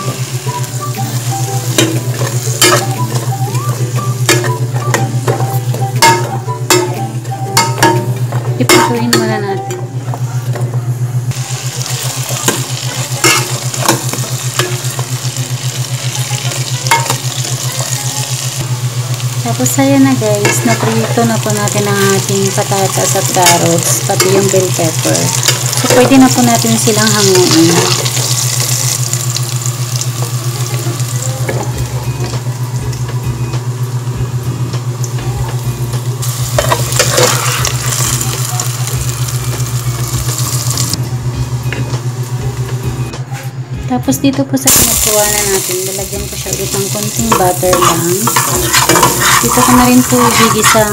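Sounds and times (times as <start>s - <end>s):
vegetables sizzling in pan: 0.0s - 9.6s, 11.3s - 41.0s, 44.7s - 50.9s
steady low hum: 0.0s - 50.9s
metal utensil scraping pan: 36.6s - 38.2s, 46.5s - 50.9s.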